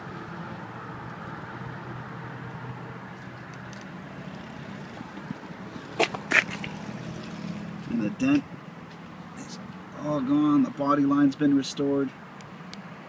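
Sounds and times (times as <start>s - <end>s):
outdoor hum and rumble: 0.0s - 10.3s.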